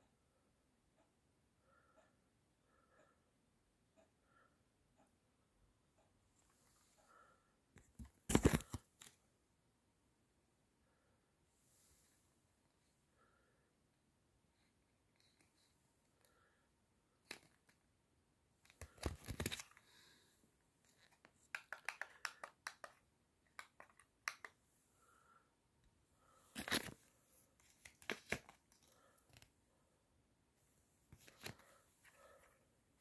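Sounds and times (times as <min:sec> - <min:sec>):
paper cards rustling: 0:08.0 - 0:09.1, 0:18.6 - 0:20.0, 0:20.9 - 0:24.6, 0:26.5 - 0:27.0, 0:27.6 - 0:29.5, 0:31.1 - 0:32.4.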